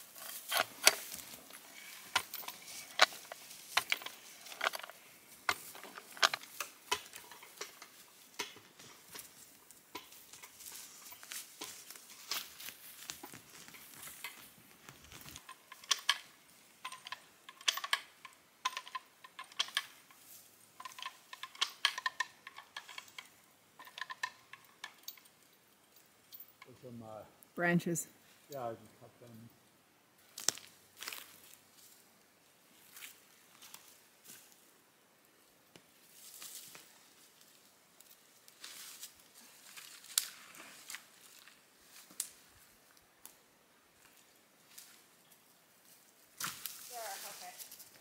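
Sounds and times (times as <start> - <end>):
winch metallic clicks and clanks: 0.2 - 8.9, 15.4 - 20.2, 20.8 - 25.4.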